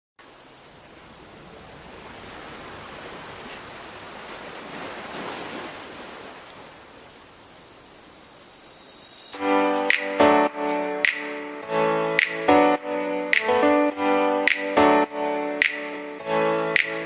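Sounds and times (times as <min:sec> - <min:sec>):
ocean waves washing in: 0:00.7 - 0:12.4
steady high-pitched tone: 0:09.0 - 0:17.0.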